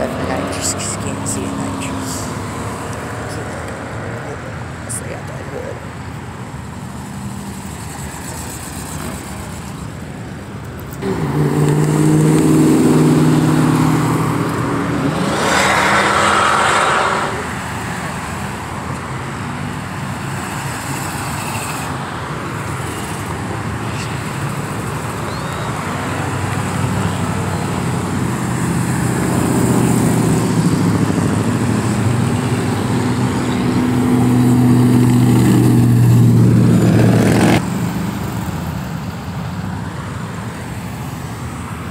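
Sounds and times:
cars and trucks driving past: 0:00.0 - 0:41.9
engine revving: 0:11.0 - 0:17.7, 0:22.8 - 0:37.7
loud exhaust: 0:11.0 - 0:18.1.

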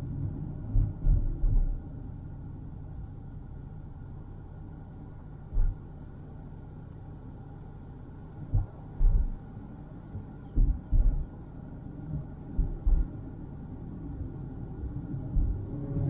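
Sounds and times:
car road rumble: 0:00.0 - 0:16.0
low thumps: 0:12.6 - 0:13.1.

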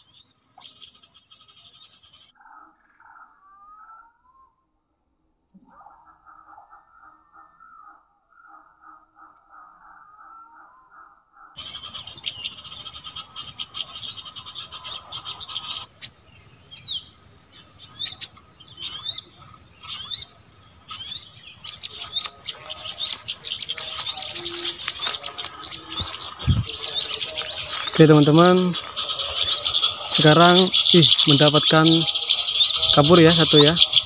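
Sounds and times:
small birds chattering in trills: 0:00.0 - 0:04.5, 0:11.5 - 0:34.0
sharp sweeping bird chirps: 0:11.6 - 0:34.0.

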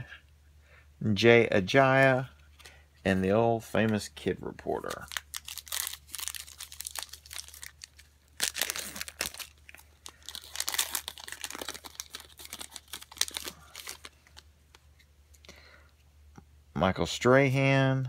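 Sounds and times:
plastic wrapper crinkling and tearing: 0:04.7 - 0:15.4.

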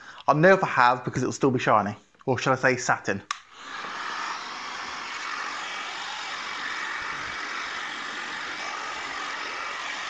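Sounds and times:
heat gun blowing air: 0:03.3 - 0:10.0.

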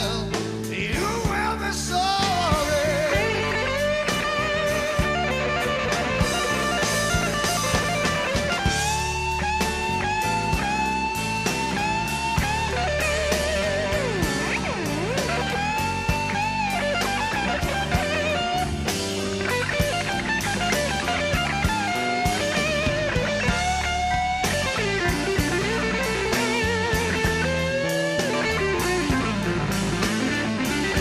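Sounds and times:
rock guitar solo with band: 0:00.0 - 0:31.0.

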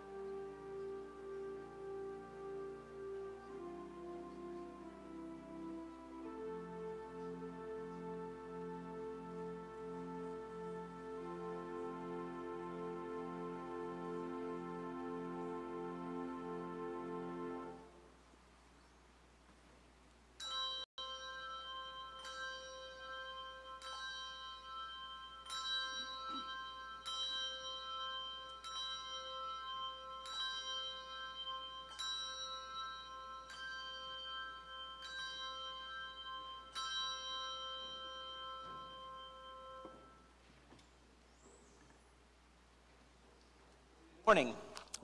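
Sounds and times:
bell tolling: 0:20.4 - 0:40.3.

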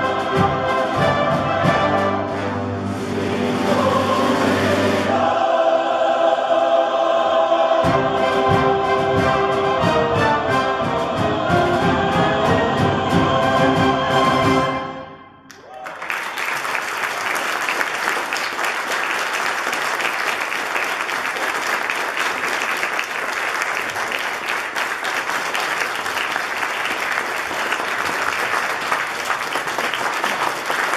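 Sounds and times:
congregation applauding: 0:15.5 - 0:30.9.

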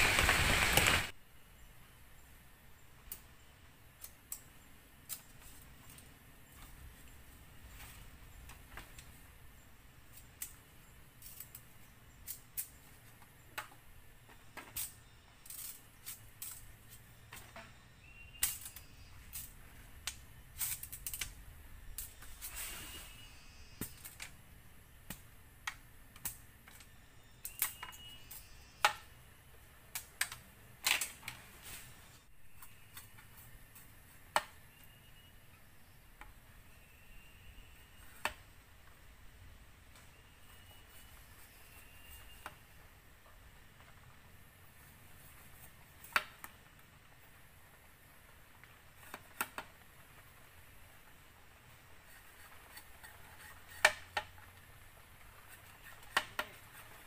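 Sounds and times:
bamboo poles clicking and knocking: 0:07.8 - 0:09.2, 0:10.0 - 0:22.4, 0:23.8 - 0:24.4, 0:25.0 - 0:29.2, 0:29.8 - 0:31.6, 0:32.5 - 0:34.9, 0:38.0 - 0:39.0, 0:45.4 - 0:47.1, 0:48.5 - 0:50.3, 0:51.6 - 0:57.0.

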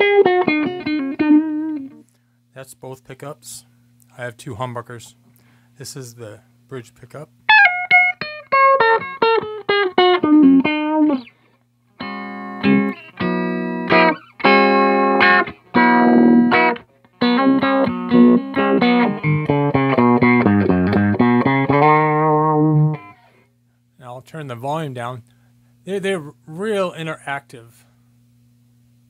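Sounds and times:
filtered electric guitar: 0:00.0 - 0:02.2, 0:07.5 - 0:23.5.

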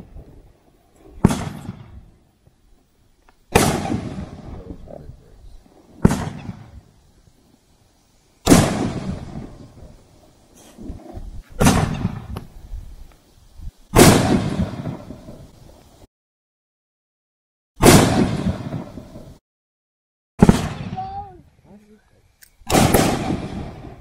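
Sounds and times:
fireworks bangs with rumbling echo: 0:01.1 - 0:02.2, 0:03.5 - 0:07.0, 0:08.4 - 0:10.0, 0:10.6 - 0:12.6, 0:13.9 - 0:15.6, 0:17.8 - 0:19.4, 0:20.4 - 0:21.4, 0:22.7 - 0:24.0.

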